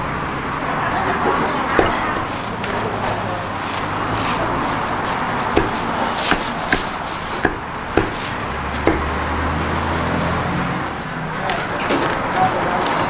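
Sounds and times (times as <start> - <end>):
street noise: 0.0 - 13.0
cleaver chopping on wooden block: 1.8 - 2.5, 5.5 - 9.4.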